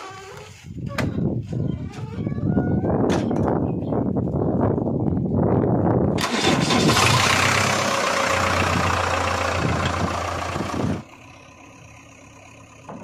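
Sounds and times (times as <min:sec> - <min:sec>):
diesel engine cranking and running: 0:06.1 - 0:13.0.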